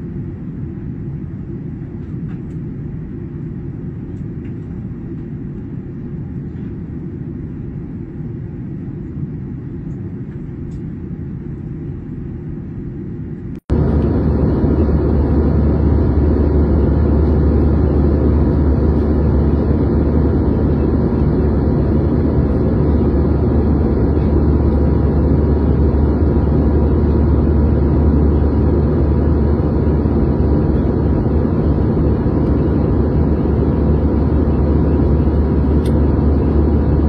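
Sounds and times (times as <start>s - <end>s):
jet airliner cabin rumble: 0.0s - 37.0s.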